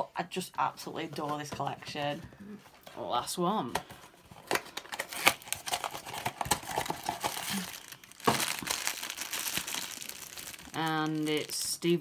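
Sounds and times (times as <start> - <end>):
foil bag crinkling: 4.5 - 12.0.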